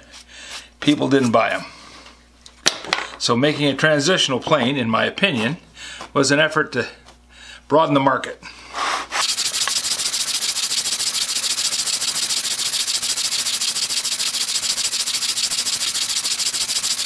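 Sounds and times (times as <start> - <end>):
hand plane scratching on sandpaper: 9.1 - 17.0.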